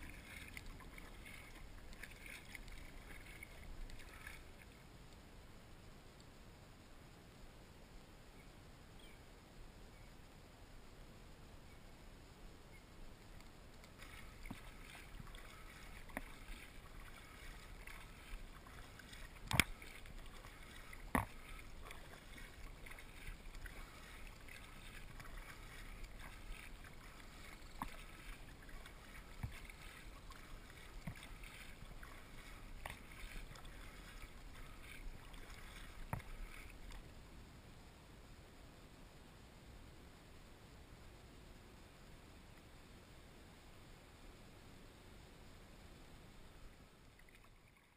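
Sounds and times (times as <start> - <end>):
kayak paddle strokes in water: 0.0 - 5.2, 13.2 - 37.2, 47.1 - 47.9.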